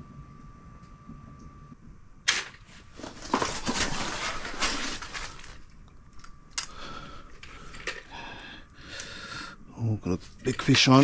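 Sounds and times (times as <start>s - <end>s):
loud scraping and clattering: 3.0s - 5.6s.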